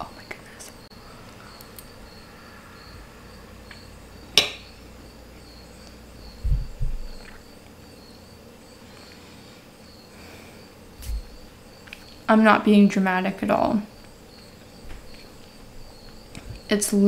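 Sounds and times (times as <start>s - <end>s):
faint cricket chirping: 0.0s - 17.0s
low thumps: 6.2s - 7.3s, 11.0s - 11.5s.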